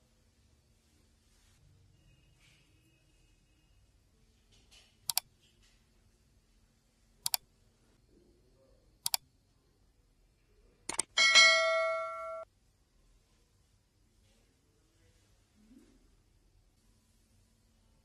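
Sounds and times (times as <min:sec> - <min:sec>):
computer mouse clicks: 0:05.0 - 0:05.3, 0:07.2 - 0:07.4, 0:09.0 - 0:09.2, 0:10.9 - 0:11.1
notification bell ding: 0:11.2 - 0:12.4.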